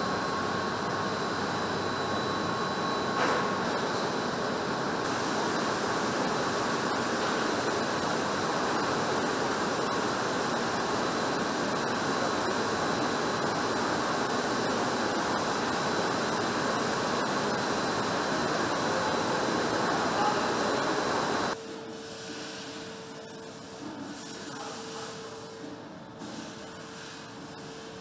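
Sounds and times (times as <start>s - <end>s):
faint high whine: 0.0s - 21.9s
ventilation and machinery hiss: 0.0s - 28.0s.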